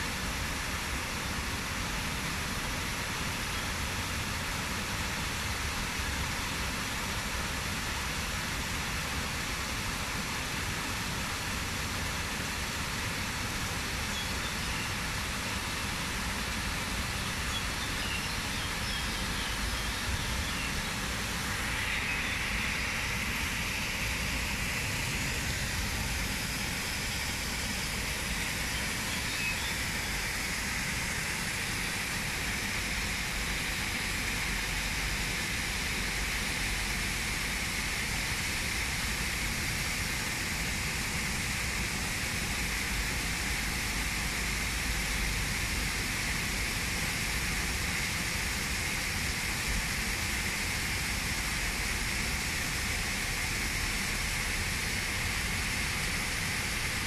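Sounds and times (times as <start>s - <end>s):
waterfall splashing into pond: 0.0s - 57.0s.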